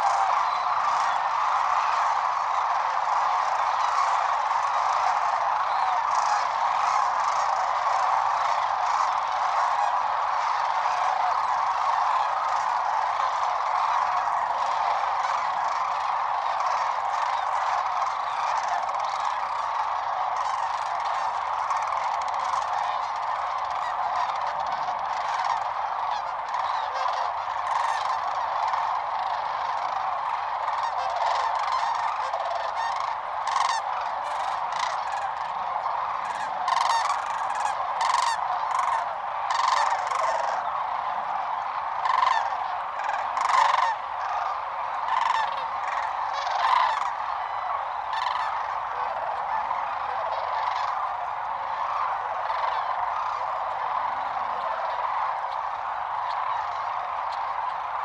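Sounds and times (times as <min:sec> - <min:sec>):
closer louder crane calls: 0:00.0 - 0:58.0
flock of cranes calling: 0:00.0 - 0:58.0.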